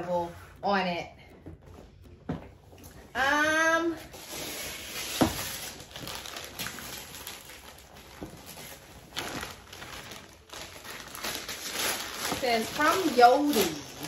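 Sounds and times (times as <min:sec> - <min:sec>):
wrapping paper rustling and tearing: 0:03.8 - 0:14.0.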